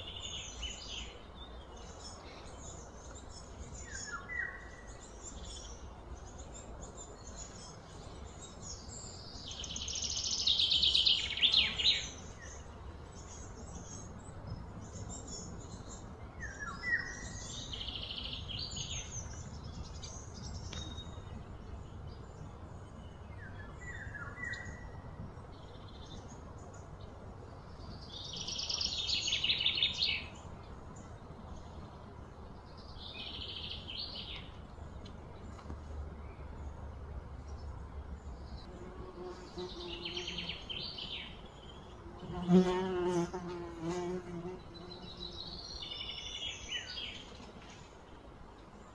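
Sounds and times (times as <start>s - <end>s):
birds chirping: 0.0s - 48.9s
bird buzzing trill: 38.7s - 41.0s, 42.0s - 45.6s.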